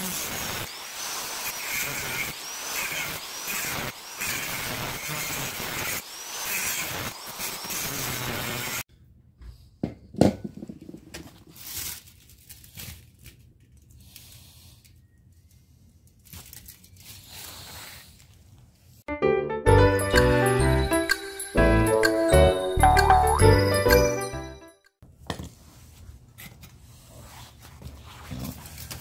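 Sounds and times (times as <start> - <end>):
angle grinder cutting metal: 0.0 - 8.8.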